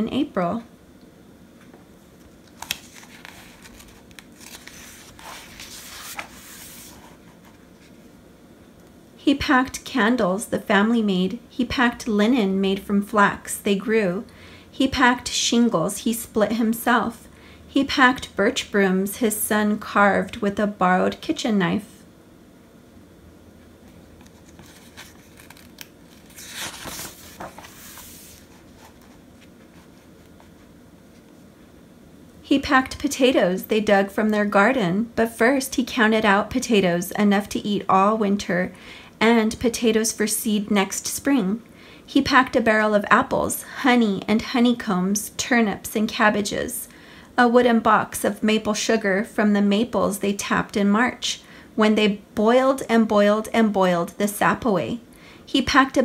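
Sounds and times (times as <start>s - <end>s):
book page turning: 2.2s - 8.0s, 23.9s - 31.3s.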